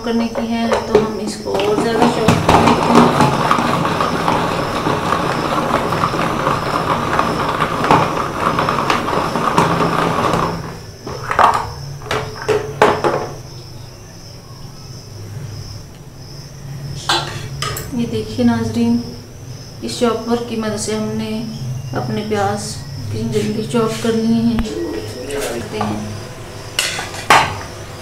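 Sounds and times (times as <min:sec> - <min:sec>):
vegetable chopper clattering: 0:00.8 - 0:13.5, 0:25.0 - 0:28.0.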